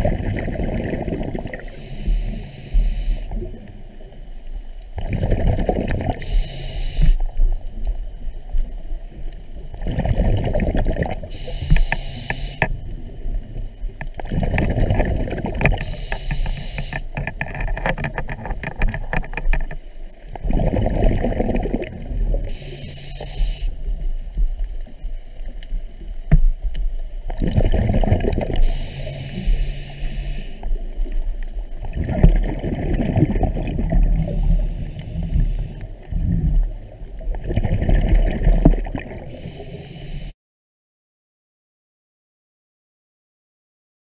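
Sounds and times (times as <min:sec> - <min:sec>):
exhaled bubbles rumbling: 0:00.0 - 0:12.0, 0:12.6 - 0:22.8, 0:23.4 - 0:39.7
regulator hissing inhalation: 0:01.6 - 0:03.4, 0:06.2 - 0:07.3, 0:11.3 - 0:12.7, 0:15.8 - 0:17.2, 0:22.4 - 0:23.8, 0:28.6 - 0:30.7, 0:34.1 - 0:35.8, 0:39.3 - 0:40.4.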